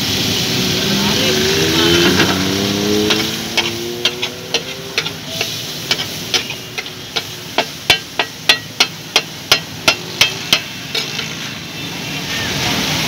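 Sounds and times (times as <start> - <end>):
steady frying sizzle: 0.0 - 13.0
metal spatula clacking on iron griddle: 2.9 - 11.4.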